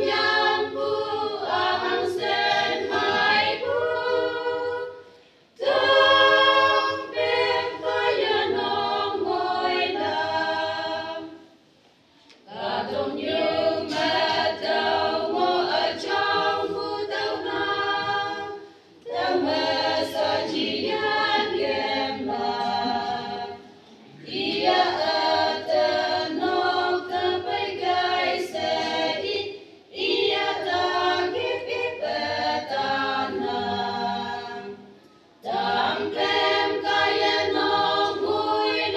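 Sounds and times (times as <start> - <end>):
women's choir singing a hymn: 0.0 - 38.9.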